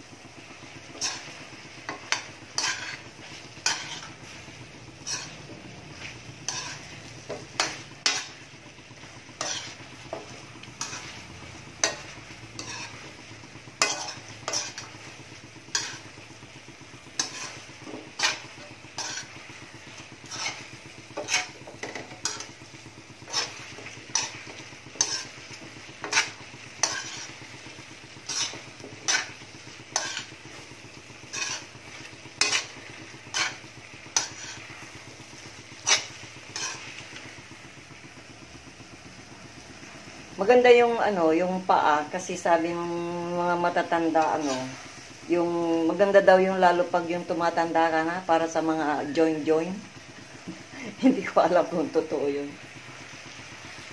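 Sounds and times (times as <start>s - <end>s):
food sizzling: 0.0s - 53.9s
metal spoon scraping pan: 0.9s - 8.4s, 9.0s - 13.2s, 13.8s - 16.2s, 17.0s - 22.6s, 23.2s - 37.2s, 43.7s - 44.9s.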